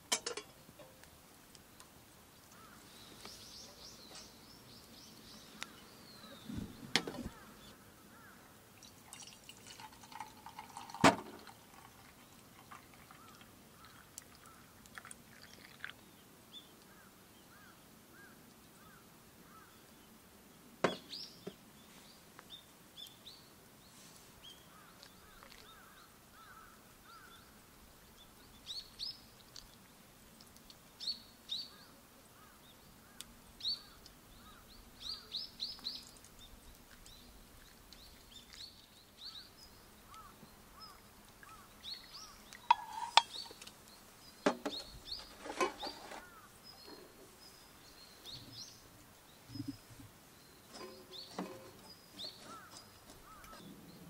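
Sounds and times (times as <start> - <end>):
small birds chirping: 0.2 - 54.0
sharp knocks: 20.8 - 21.1.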